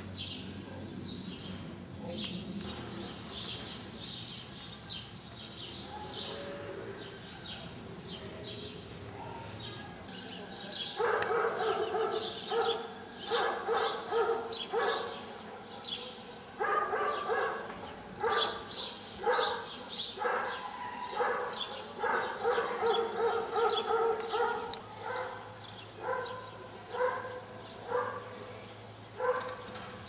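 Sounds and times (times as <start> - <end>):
small birds chirping: 0.0 - 30.0
dog barking: 11.0 - 28.3, 29.2 - 29.6.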